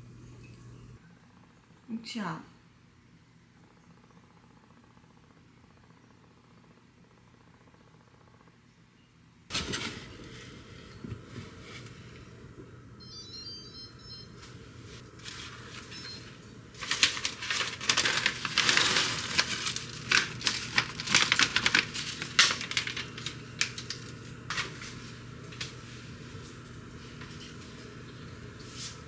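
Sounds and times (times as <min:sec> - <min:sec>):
dried herbs crackling: 0:15.0 - 0:27.9
paper packet crinkling: 0:15.1 - 0:25.0.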